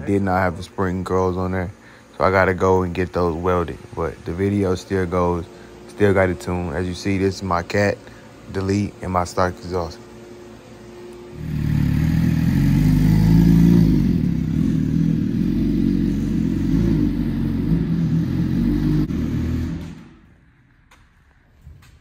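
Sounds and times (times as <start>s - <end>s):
motorcycle engine running: 11.2s - 20.0s.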